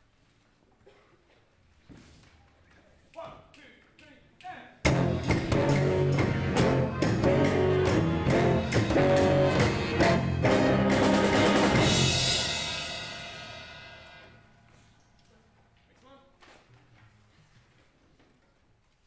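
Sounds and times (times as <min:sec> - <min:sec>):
drum hits: 0:04.8 - 0:14.7
pep band playing: 0:04.8 - 0:14.9.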